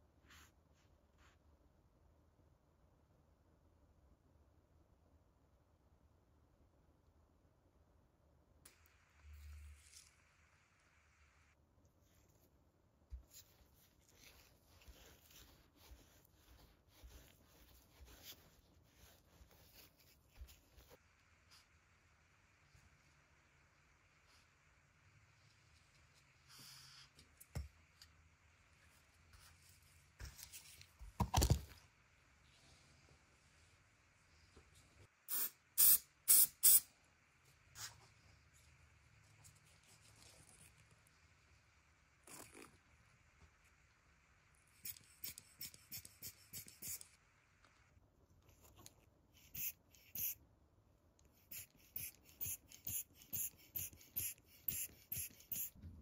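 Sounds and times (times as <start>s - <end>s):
applicator hissing rasps: 49.4s - 50.4s, 51.4s - 55.7s.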